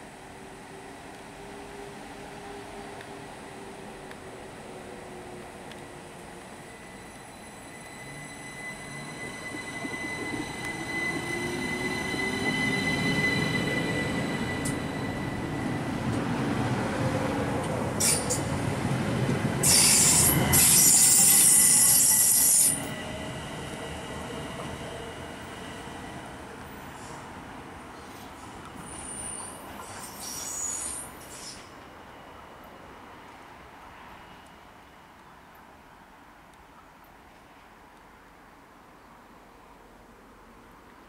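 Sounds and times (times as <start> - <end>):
train rumble: 0.1 - 34.1
train wheels squealing: 6.5 - 16.2, 18.0 - 18.6, 19.6 - 26.2, 28.0 - 33.2
loud even hiss: 19.6 - 22.8.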